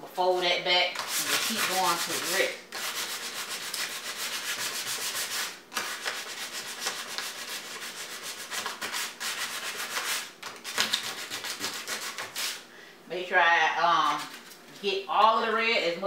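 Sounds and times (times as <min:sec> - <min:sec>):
sandpaper rubbing on painted metal: 0:01.0 - 0:12.6.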